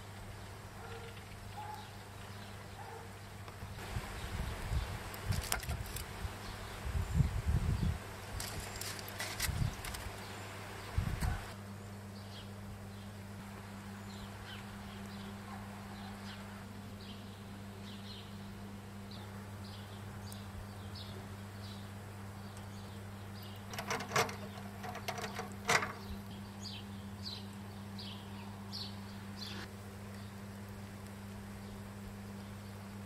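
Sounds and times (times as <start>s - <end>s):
small birds chirping: 0.0s - 33.0s
steady low hum: 0.0s - 33.0s
tongs clattering on metal grill: 23.7s - 26.1s.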